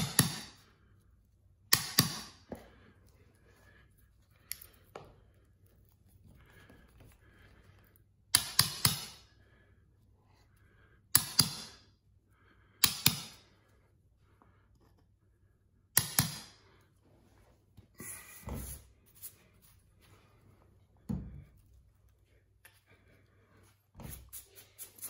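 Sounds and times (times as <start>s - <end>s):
hammer tapping metal blade: 0.0s - 0.6s, 1.7s - 2.4s, 8.3s - 9.3s, 11.2s - 11.8s, 12.8s - 13.4s, 16.0s - 16.6s.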